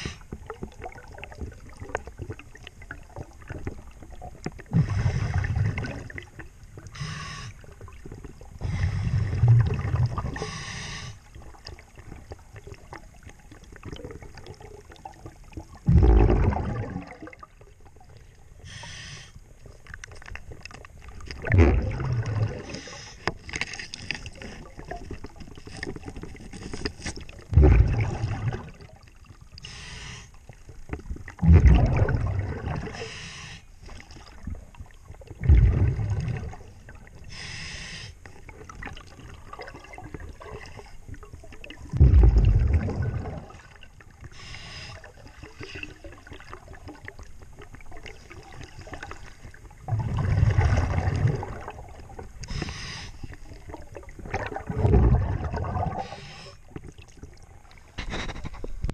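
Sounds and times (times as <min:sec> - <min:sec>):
exhaled air bubbling underwater: 0:00.0 - 0:58.9
regulator inhalation hiss: 0:07.0 - 0:07.6, 0:10.4 - 0:11.2, 0:18.6 - 0:19.4, 0:29.6 - 0:30.4, 0:33.0 - 0:33.7, 0:37.3 - 0:38.2, 0:44.4 - 0:45.0, 0:52.5 - 0:53.3, 0:56.0 - 0:56.6.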